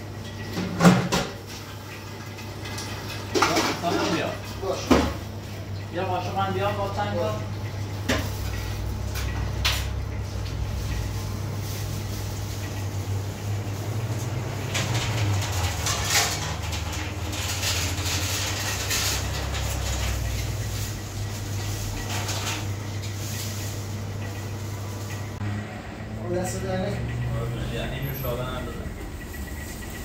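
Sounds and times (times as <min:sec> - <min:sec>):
kitchen equipment humming: 0:00.0 - 0:30.0
clatter: 0:14.7 - 0:20.2.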